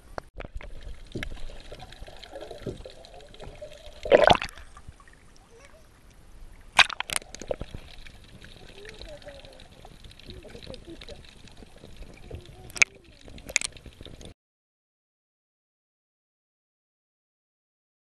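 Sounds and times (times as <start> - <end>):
rush of bubbles underwater: 0.4 - 5.3, 6.6 - 14.3
water sloshing and gurgling: 0.4 - 14.4
water splashes: 0.4 - 14.4.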